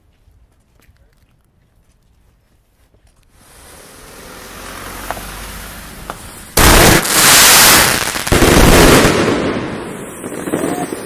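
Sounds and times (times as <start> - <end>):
firework blast: 3.3 - 11.0
firework fuse hissing: 3.3 - 11.0.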